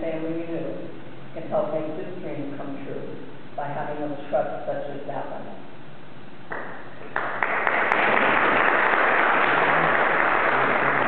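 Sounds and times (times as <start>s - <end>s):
audience applauding: 6.5s - 11.0s.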